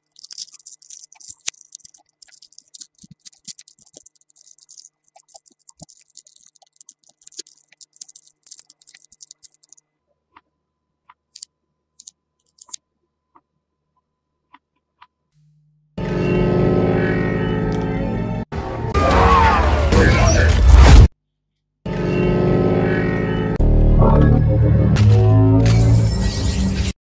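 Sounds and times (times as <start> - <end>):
magnetic balls clicking and rattling: 0.0 - 9.8, 11.4 - 12.8.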